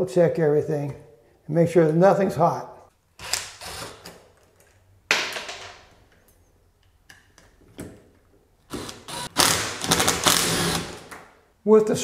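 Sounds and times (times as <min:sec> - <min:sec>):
cordless driver spinning screws: 0:08.7 - 0:11.0.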